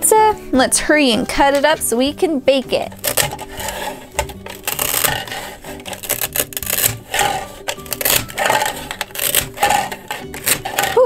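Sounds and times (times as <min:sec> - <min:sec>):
hook-and-loop rasping tears: 0:02.9 - 0:11.0.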